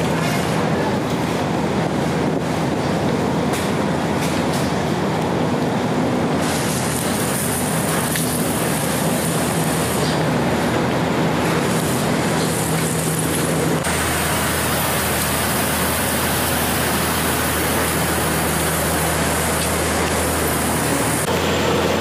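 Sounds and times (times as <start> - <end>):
ferry engines rumbling: 0.0 - 22.0
steady high hiss: 6.2 - 22.0.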